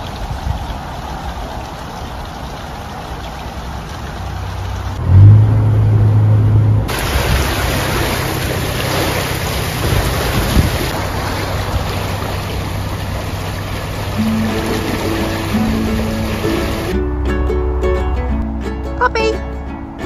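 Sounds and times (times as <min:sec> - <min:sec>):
rushing hiss of water and wind: 0:00.0 - 0:05.5, 0:06.9 - 0:17.0
diesel engine humming: 0:04.1 - 0:20.0.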